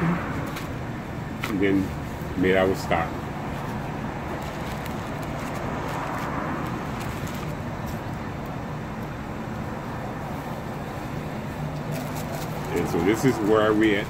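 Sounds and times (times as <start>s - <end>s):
road traffic noise: 0.0s - 14.0s
vehicle passing: 0.0s - 14.0s
paper wrapper crinkling: 3.6s - 7.6s, 11.8s - 14.0s.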